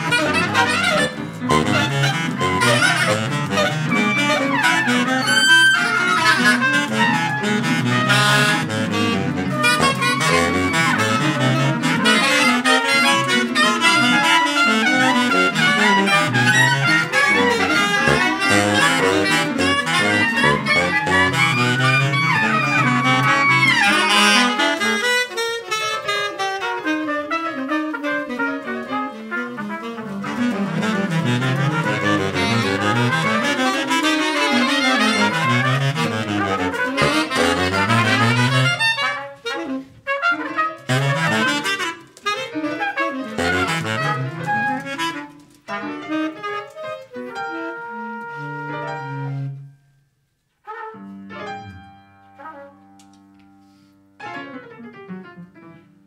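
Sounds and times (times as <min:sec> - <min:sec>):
saxophones and trumpet playing: 0:00.0 - 0:49.7
piano: 0:00.0 - 0:56.0.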